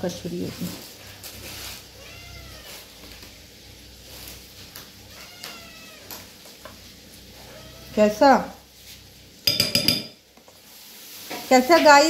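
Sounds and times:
cat meowing: 0:01.8 - 0:03.0, 0:05.0 - 0:06.3, 0:07.4 - 0:08.1.

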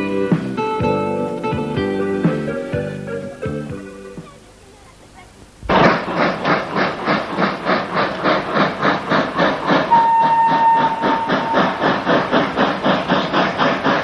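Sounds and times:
steam locomotive chuffing: 0:00.0 - 0:04.4, 0:05.7 - 0:14.0
steam whistle: 0:09.7 - 0:13.2.

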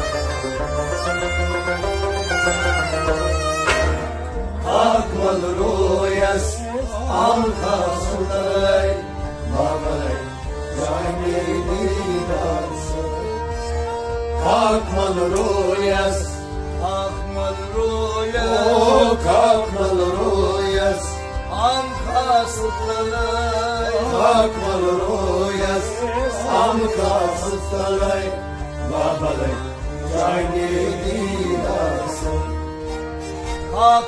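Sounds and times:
plucked lute: 0:00.0 - 0:05.3
harmonium chords: 0:00.0 - 0:34.0
men singing devotional song: 0:04.6 - 0:32.8, 0:33.7 - 0:34.0.

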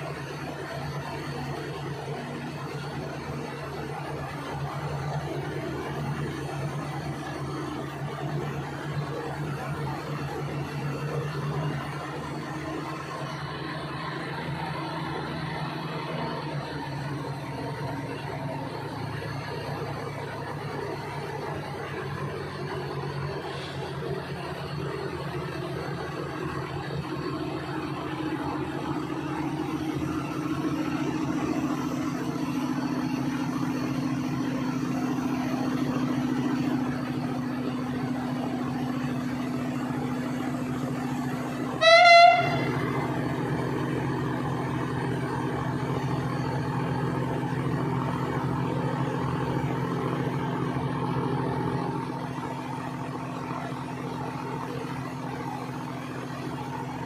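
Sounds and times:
diesel engines running: 0:00.0 - 0:57.0
short horn toot: 0:41.7 - 0:43.0.

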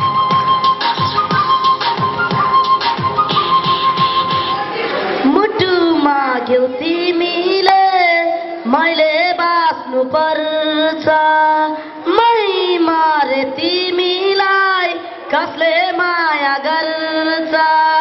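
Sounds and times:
boy singing into microphone: 0:05.2 - 0:18.0.

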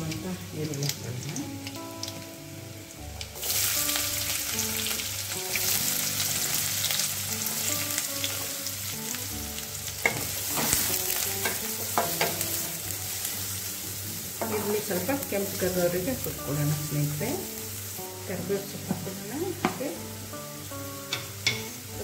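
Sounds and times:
oil sizzling in a pan: 0:00.0 - 0:22.0
spatula scraping and knocking pan: 0:10.0 - 0:12.7, 0:14.4 - 0:14.9.

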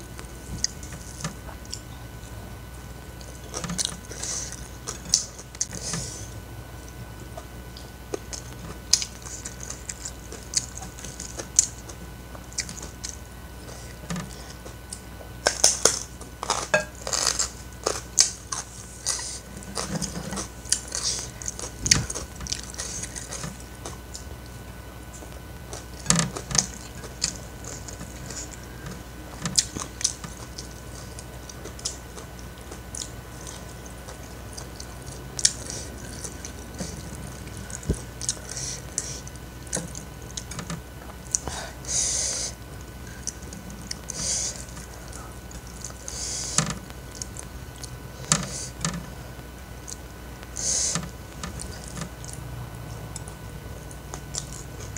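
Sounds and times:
chewing and wet mouth smacks: 0:51.5 - 0:54.9.

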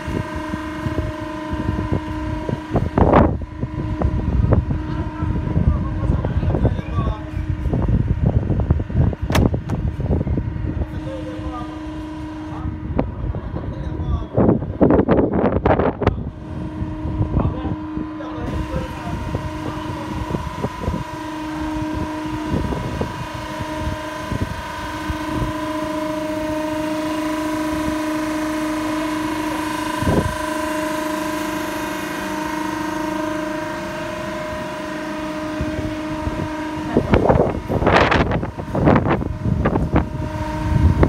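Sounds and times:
block machine humming: 0:00.0 - 0:41.0.

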